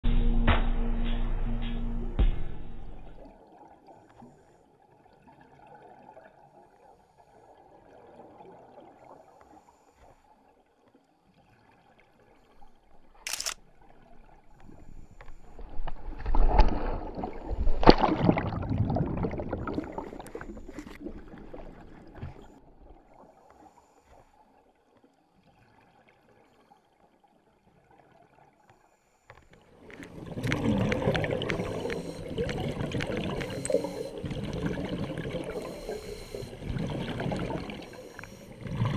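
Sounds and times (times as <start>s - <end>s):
muffled water sounds: 0.0s - 38.9s
water rushing and bubbling: 11.2s - 28.6s, 29.4s - 38.9s
sharp click: 13.2s - 13.6s
camera handling noise: 13.2s - 13.7s.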